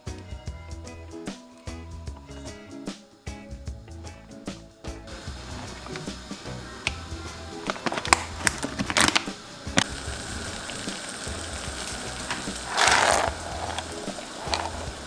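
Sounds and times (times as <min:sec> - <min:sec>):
water boiling in a pot: 0:05.1 - 0:15.0
plastic bag crinkling: 0:07.6 - 0:09.3, 0:12.3 - 0:15.0
pasta sliding into water: 0:12.2 - 0:14.9.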